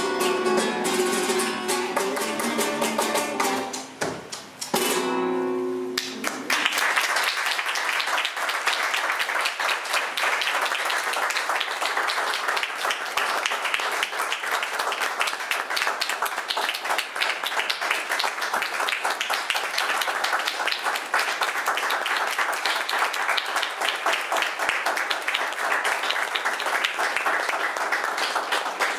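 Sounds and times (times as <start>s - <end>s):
flamenco guitar chord ringing: 0.0s - 3.8s, 4.8s - 6.2s
audience applause: 6.0s - 28.9s.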